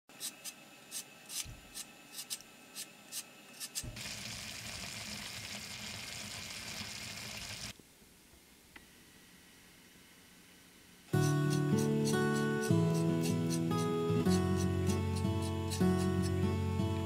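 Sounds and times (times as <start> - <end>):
knife scraping root: 0.1 - 3.9, 11.2 - 16.4
broth simmering with hiss: 0.2 - 7.8, 11.1 - 17.0.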